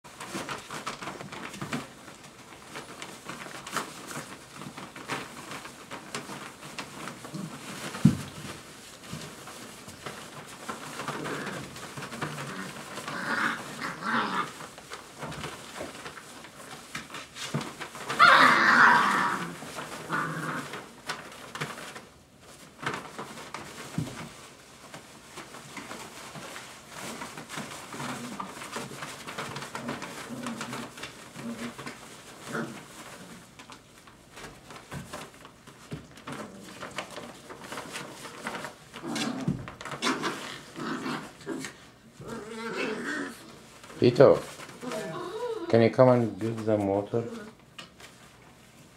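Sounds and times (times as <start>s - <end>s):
paper rustling: 0.1s - 48.9s
puppies whining: 44.8s - 45.8s.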